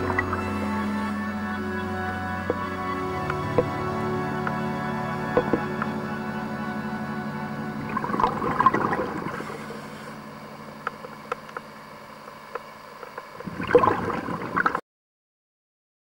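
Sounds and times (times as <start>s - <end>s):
underwater bubbles gurgling: 0.0s - 1.2s, 7.8s - 14.8s
faint clicks: 10.8s - 13.4s.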